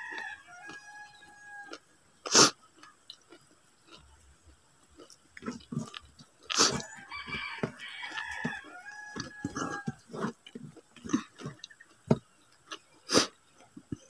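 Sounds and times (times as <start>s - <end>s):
rooster crowing: 0.0s - 1.8s, 6.7s - 10.2s
person chewing and eating: 0.0s - 14.0s.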